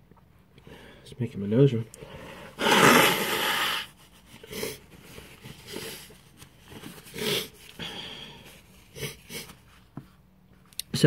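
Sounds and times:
man sniffing and breathing: 2.0 - 9.9
man sneezing: 2.6 - 3.8.

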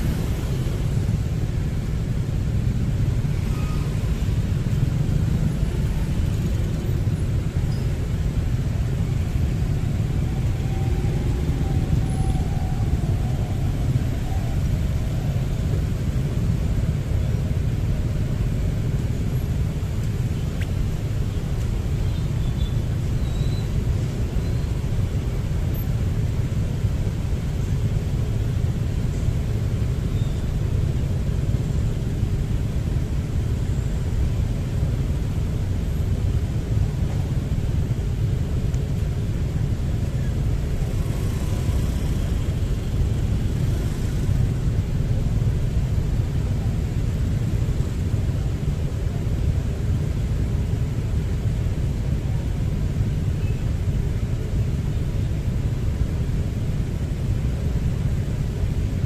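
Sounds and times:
road noise: 0.0 - 59.0
wind: 0.0 - 59.0.

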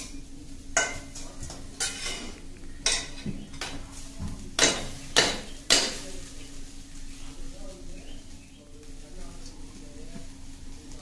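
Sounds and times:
steady low hum: 0.0 - 11.0
spoon scraping metal pan: 1.8 - 3.7.

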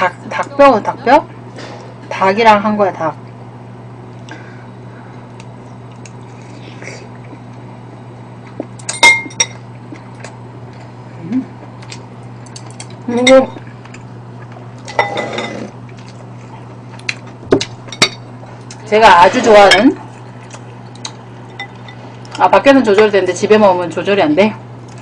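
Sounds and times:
steady low hum: 0.0 - 25.0
utensils clinking on ceramic bowls: 14.8 - 15.7
spoon scraping across plate: 14.9 - 15.7.

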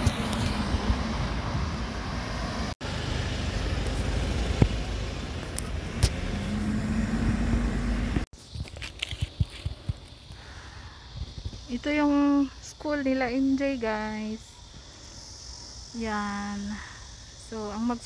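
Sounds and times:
passing cars rumble: 0.0 - 8.3
engine hum: 0.0 - 10.6.

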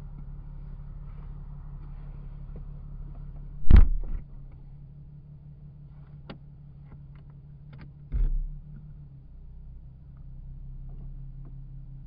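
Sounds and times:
steady low hum: 0.4 - 5.6
heavy thumps: 3.6 - 4.4.

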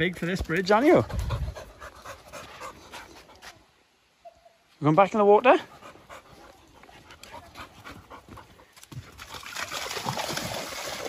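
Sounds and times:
dog panting: 0.9 - 3.5, 5.6 - 8.8
water splashing: 8.9 - 11.0.

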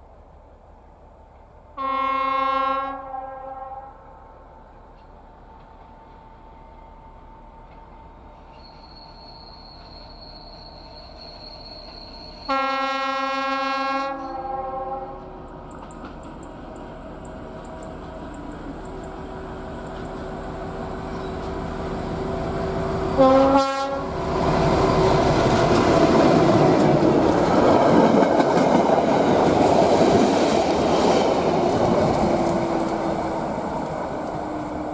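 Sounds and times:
diesel locomotive engine: 0.0 - 34.9
train horn blast: 1.8 - 4.2, 12.5 - 15.4, 23.1 - 24.2
train wheels on rails: 4.4 - 13.3, 14.1 - 34.9.

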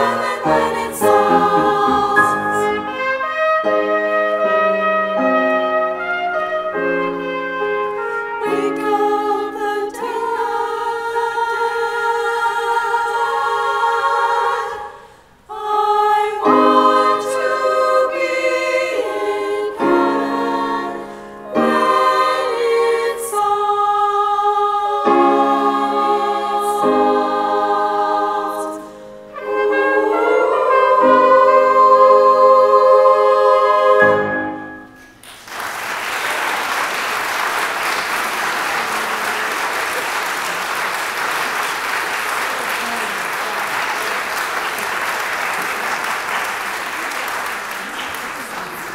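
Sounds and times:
congregation applause: 0.0 - 3.1, 35.1 - 48.9
women's choir singing: 0.0 - 3.2, 8.4 - 34.9.

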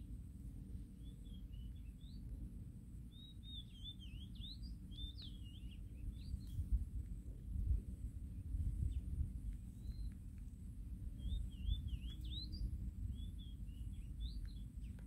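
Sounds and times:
songbird twittering: 0.9 - 2.3, 3.1 - 6.7, 8.3 - 15.0.

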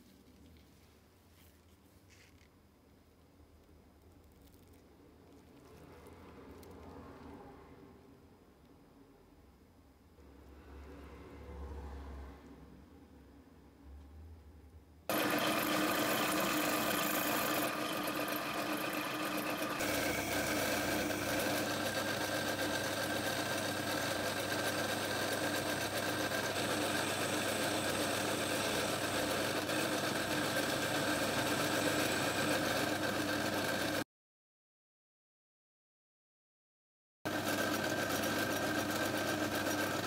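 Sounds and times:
drill bit drilling metal: 15.1 - 34.0
metal lathe cutting: 15.1 - 34.0.

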